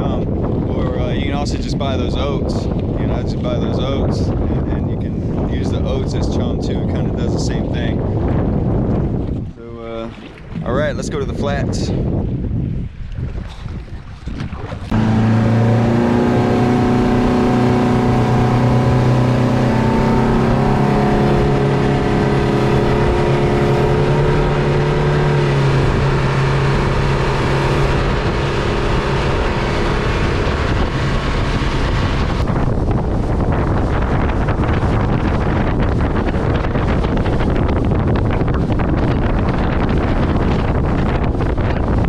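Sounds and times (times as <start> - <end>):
outboard engine drone: 0.0 - 42.0
wind noise: 0.0 - 42.0
rushing wake and spray: 7.3 - 42.0
water hissing off hull: 14.8 - 32.5.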